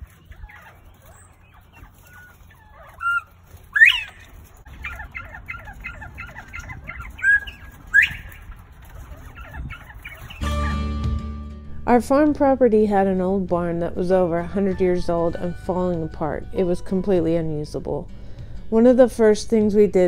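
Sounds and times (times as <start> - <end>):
quail soft quick chirps: 0.0 - 10.8
quail whistling call: 0.0 - 10.9.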